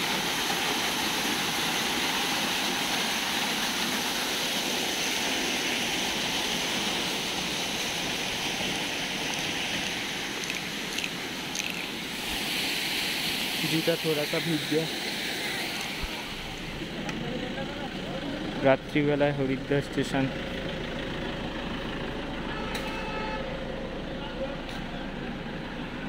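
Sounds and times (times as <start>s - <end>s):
mountain water rushing: 0.0s - 17.1s.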